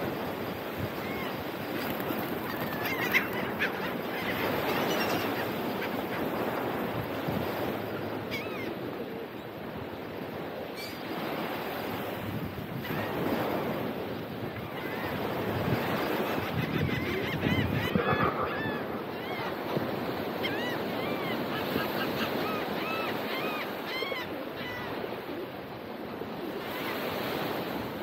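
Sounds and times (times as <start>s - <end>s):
birds giving high cries: 2.2s - 6.8s
ocean surf washing in: 13.2s - 22.5s.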